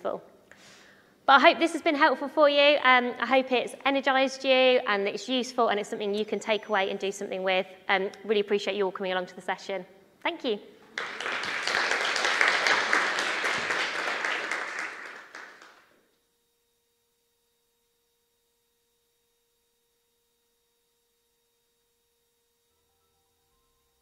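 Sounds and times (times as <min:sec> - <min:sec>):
audience applauding: 0:10.9 - 0:15.9.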